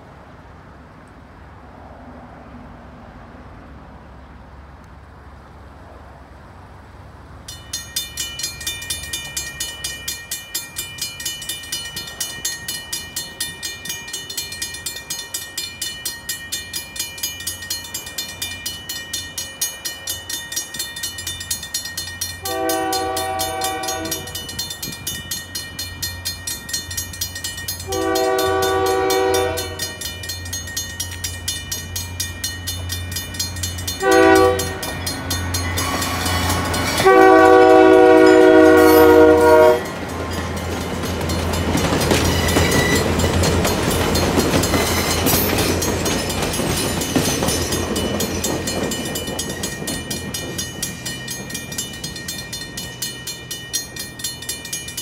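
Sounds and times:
railroad crossing bell ringing: 7.4 - 55.0
train horn blasts: 22.4 - 24.4, 27.9 - 30.1, 34.0 - 35.0, 35.8 - 40.0.

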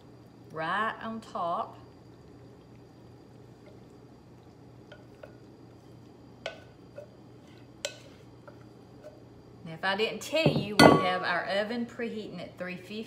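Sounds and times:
mixture dripping: 0.0 - 9.4
steady low hum: 0.0 - 13.0.

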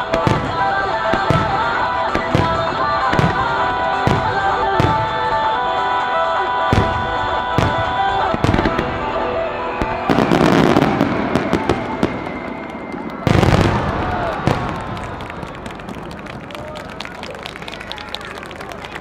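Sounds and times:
music with sustained tones: 0.0 - 14.3
dense rapid firework crackling: 7.6 - 18.5.

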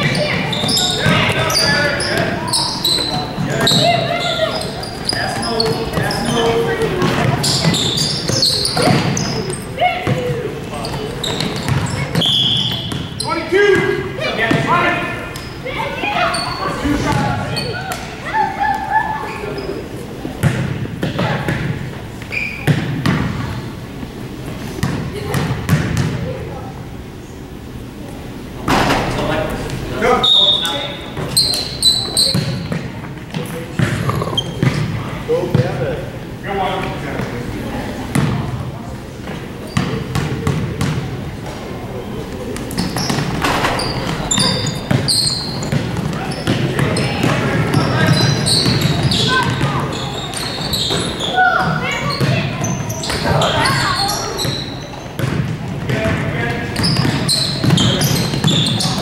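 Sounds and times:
basketball bouncing on gym floor: 0.0 - 13.2, 20.4 - 21.8, 22.6 - 23.6, 24.8 - 26.3, 31.1 - 35.7, 38.1 - 38.5, 39.7 - 41.1, 42.6 - 53.8, 54.4 - 59.0
voices of players and spectators: 0.0 - 59.0
basketball bouncing on hardwood: 43.0 - 48.0, 55.2 - 56.2.

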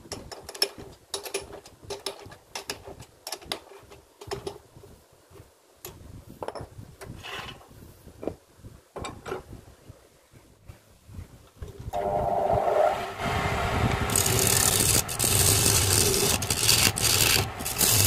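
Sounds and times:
metal scrape: 12.0 - 18.0.

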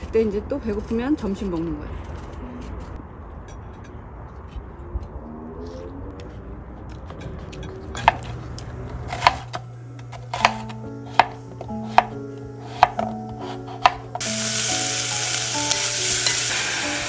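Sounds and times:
light background music: 7.4 - 17.0.

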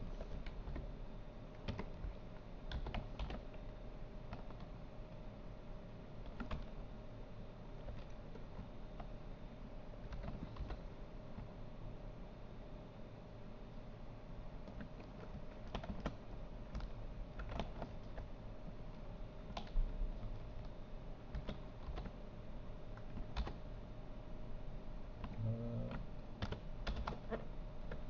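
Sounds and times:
keyboard and mouse clicking: 1.6 - 2.1, 2.7 - 3.6, 6.2 - 6.7, 10.0 - 10.8, 14.6 - 18.3, 19.5 - 22.2, 25.2 - 28.0
low hum: 24.4 - 26.4.

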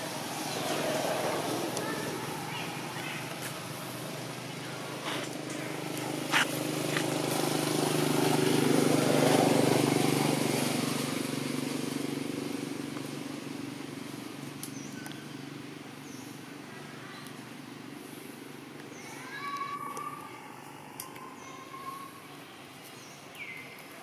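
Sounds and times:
vehicle engine passing by: 0.0 - 14.4.

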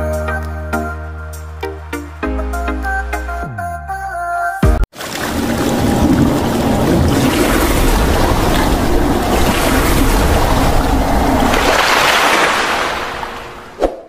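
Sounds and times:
water rushing and splashing: 4.9 - 13.9.

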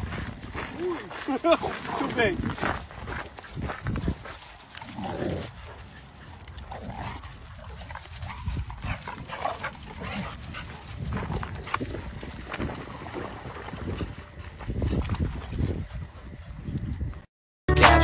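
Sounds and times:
dogs playing vocal noises: 4.6 - 11.1.

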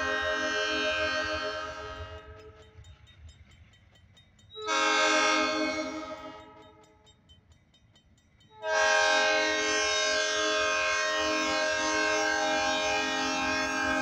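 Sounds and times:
locomotive air horn blasts: 0.0 - 2.4, 4.7 - 6.6, 8.6 - 14.0
crossing bell ringing: 0.0 - 10.2
train rumble: 0.0 - 14.0.

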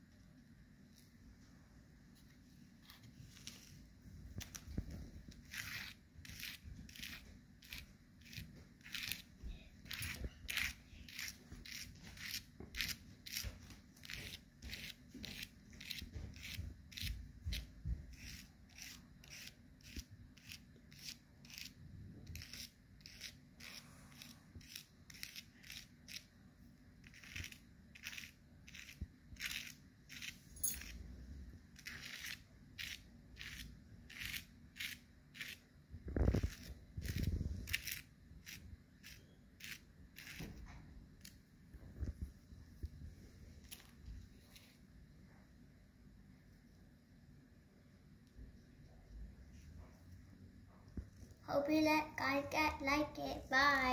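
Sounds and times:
fingers scratching powder on paper: 2.8 - 3.8, 4.4 - 26.3, 27.0 - 31.1, 31.8 - 41.4.

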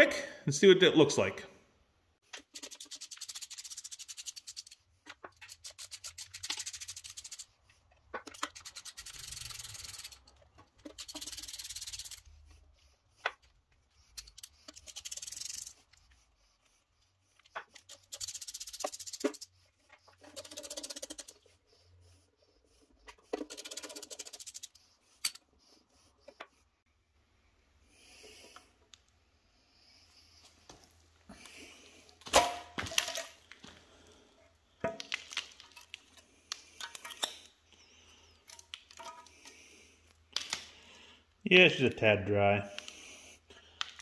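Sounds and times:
hand ratchet clicking: 2.4 - 4.8, 5.4 - 7.5, 8.3 - 12.3, 14.1 - 15.8, 17.8 - 19.5, 20.2 - 21.4, 23.4 - 25.4.

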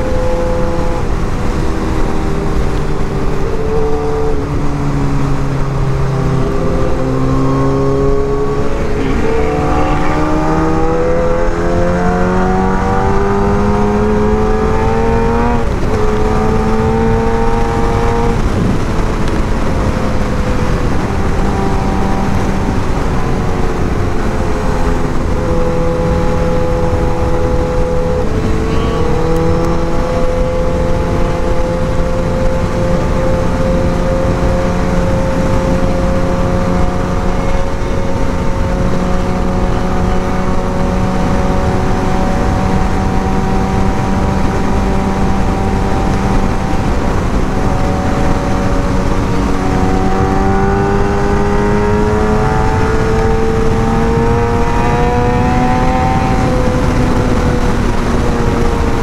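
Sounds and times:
motorcycle engine running: 0.0 - 59.0
steady noise: 1.0 - 14.4.

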